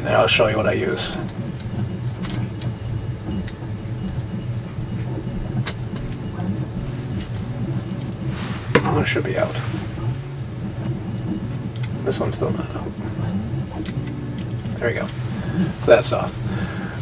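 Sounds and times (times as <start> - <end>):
printer humming: 0.0 - 17.0.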